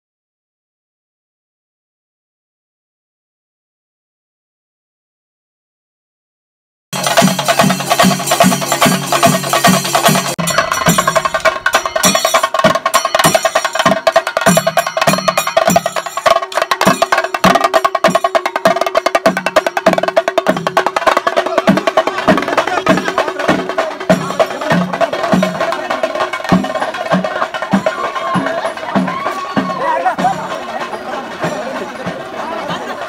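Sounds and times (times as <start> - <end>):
deep drum beat: 7.0 - 32.4
drum ensemble rolling strokes: 7.0 - 33.0
steady held note: 10.4 - 12.6.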